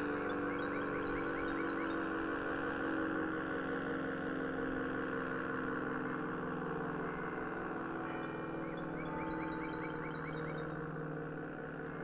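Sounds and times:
small birds chirping: 0:08.2 - 0:12.0.

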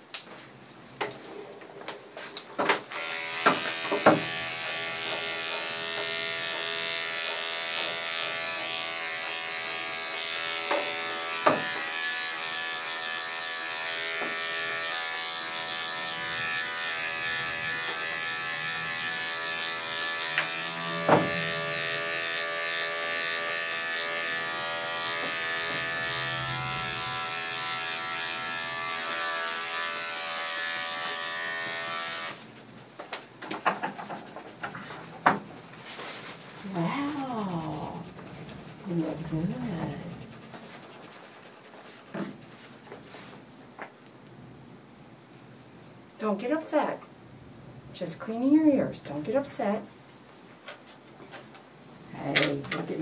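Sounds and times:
electric dog clippers buzzing: 0:02.8 - 0:32.4.

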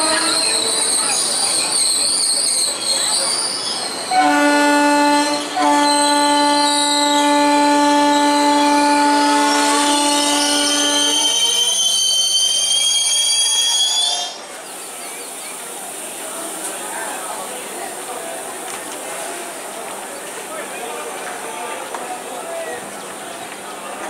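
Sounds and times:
train horn: 0:00.0 - 0:01.0, 0:04.1 - 0:12.5
wheels squealing on rails: 0:00.0 - 0:24.0.

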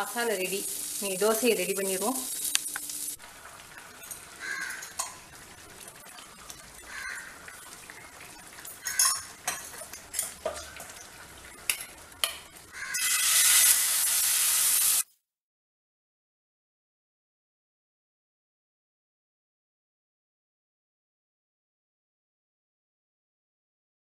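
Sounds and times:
batter sizzling on hot griddle: 0:00.0 - 0:15.1.

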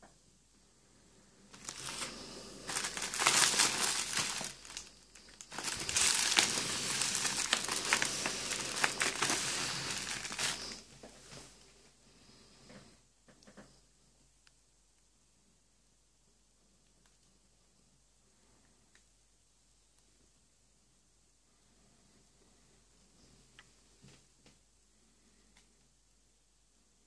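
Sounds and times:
wrapping crinkling and rustling: 0:01.5 - 0:11.5.

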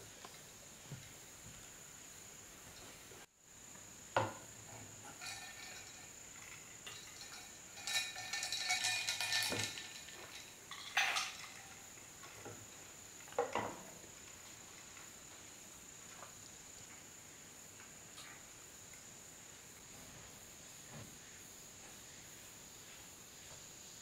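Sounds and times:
ice cubes clinking in glass: 0:05.2 - 0:11.9.

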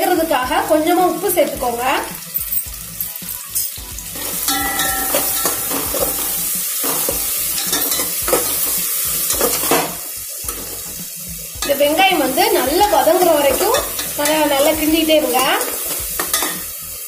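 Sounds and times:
onions sizzling in hot oil: 0:00.0 - 0:17.0
metal spoon scraping a pot: 0:02.5 - 0:09.9.

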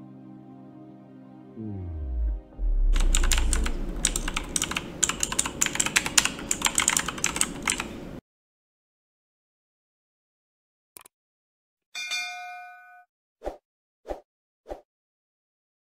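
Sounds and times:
deep falling boom: 0:01.6 - 0:05.3
keyboard typing clicks: 0:02.9 - 0:08.0.

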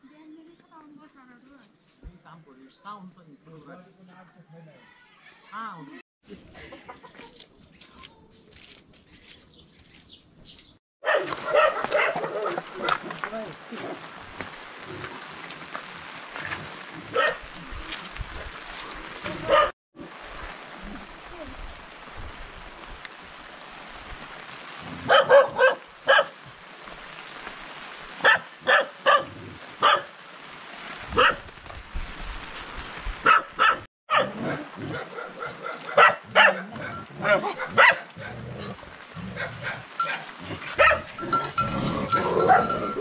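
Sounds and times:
dog barking: 0:11.0 - 0:13.0, 0:17.1 - 0:17.4, 0:19.4 - 0:19.7, 0:25.0 - 0:26.4, 0:28.2 - 0:30.1, 0:31.2 - 0:31.4, 0:33.2 - 0:38.4, 0:39.4 - 0:41.2, 0:42.4 - 0:42.8
rain hissing: 0:12.4 - 0:33.6, 0:37.0 - 0:43.0.

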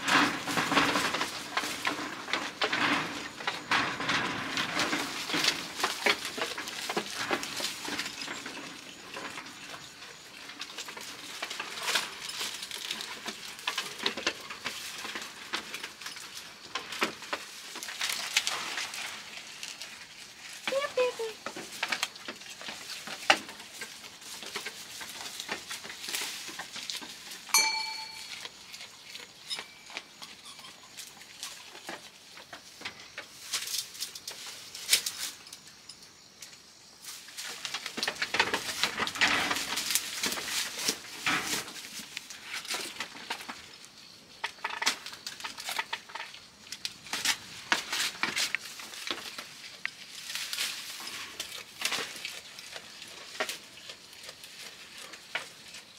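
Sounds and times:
goats crunching foliage: 0:00.0 - 0:35.6, 0:37.0 - 0:55.9
small neck bell clinking: 0:27.5 - 0:28.6.

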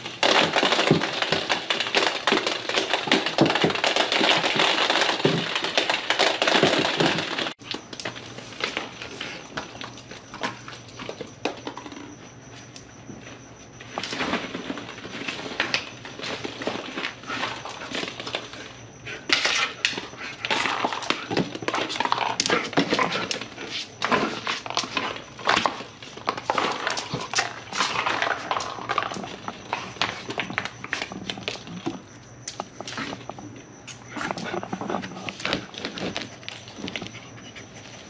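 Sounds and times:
plastic balls clattering: 0:00.0 - 0:12.1, 0:19.3 - 0:33.4.

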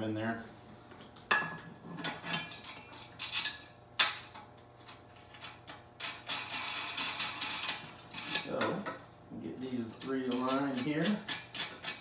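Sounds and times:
metal tripod parts clinking: 0:09.9 - 0:12.0.

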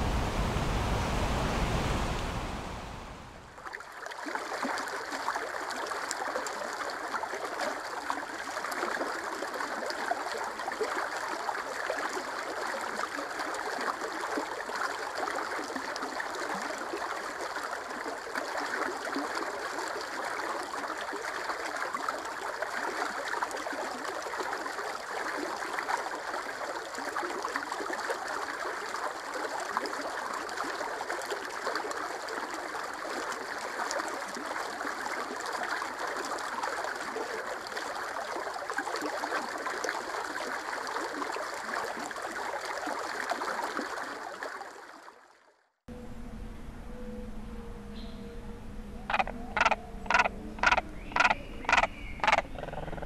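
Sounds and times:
rushing noise: 0:00.0 - 0:03.6
water trickling and gurgling: 0:00.0 - 0:45.4, 0:49.1 - 0:53.0.

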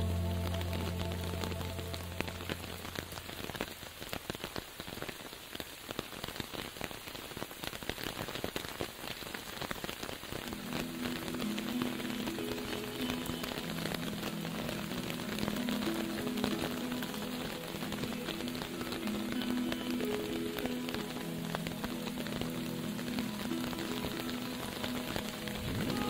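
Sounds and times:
soft held music tones: 0:00.0 - 0:04.1, 0:10.4 - 0:26.0
rain pattering: 0:00.0 - 0:26.0.

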